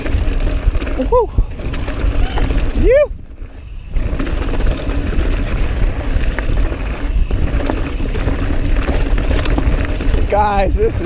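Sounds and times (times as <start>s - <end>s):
bike clicking and knocking over rocks: 0.0s - 11.0s
bike tyres rolling on dirt: 0.0s - 11.0s
wind rumble on microphone: 0.0s - 11.0s.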